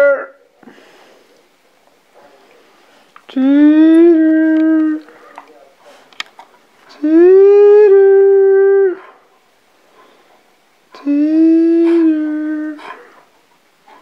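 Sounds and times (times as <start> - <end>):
dog howling: 0.0 - 0.4, 3.4 - 5.1, 6.9 - 9.2, 11.0 - 13.3.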